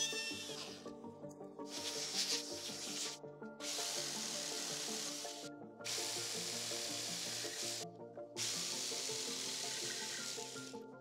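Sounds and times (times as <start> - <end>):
jigsaw cutting plywood: 3.6 - 7.8, 8.4 - 10.6.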